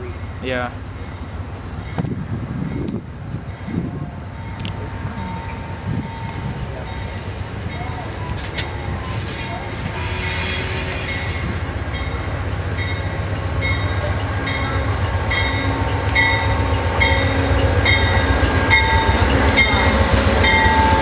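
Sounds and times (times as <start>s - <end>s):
diesel locomotive engines rumbling: 0.0s - 21.0s
locomotive bell ringing: 3.5s - 9.6s, 11.0s - 21.0s.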